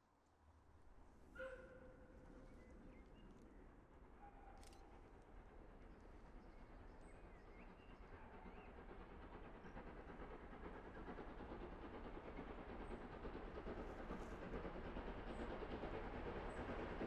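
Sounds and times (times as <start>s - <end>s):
steam train approaching: 5.0s - 17.0s.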